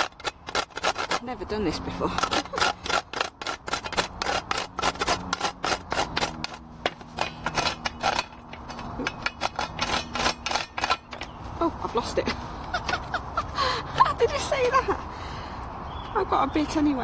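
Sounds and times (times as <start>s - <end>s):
nutmeg rasping on metal grater: 0.0s - 11.4s.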